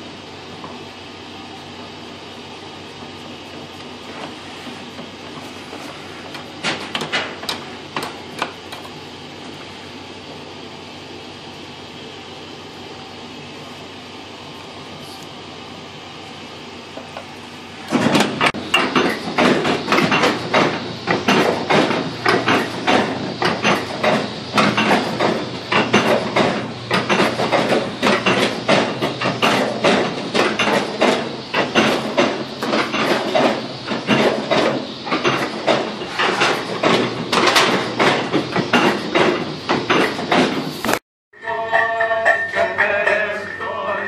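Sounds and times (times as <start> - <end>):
steady hum: 0.0 - 44.0
dense clattering and knocking: 17.9 - 40.7.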